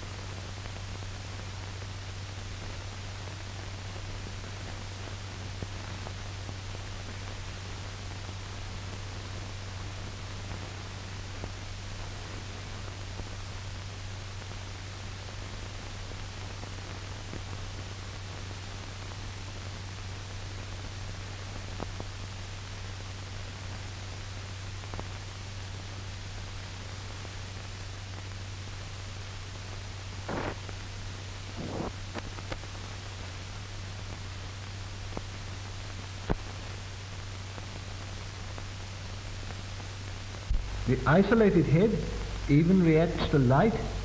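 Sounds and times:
film soundtrack hiss: 0.0s - 44.0s
low hum: 40.4s - 44.0s.

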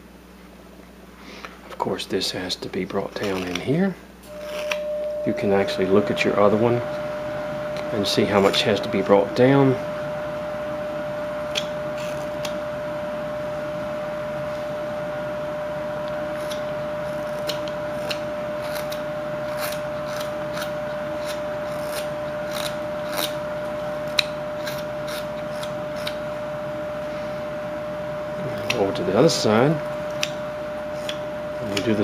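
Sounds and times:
steady hum: 0.0s - 32.0s
knife scraping wood: 3.2s - 3.7s, 11.5s - 12.6s, 16.3s - 26.2s, 30.9s - 31.3s.

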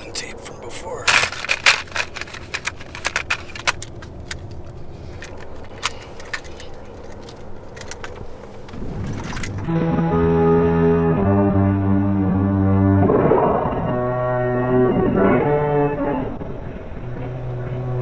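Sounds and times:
low hum of car: 0.0s - 18.0s
cassette tapes clattering: 0.9s - 8.8s.

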